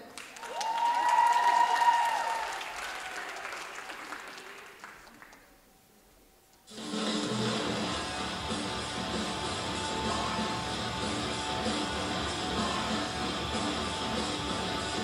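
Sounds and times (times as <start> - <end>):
audience applauding: 0.0 - 5.5
audience cheering: 0.3 - 4.6
music: 6.7 - 15.0.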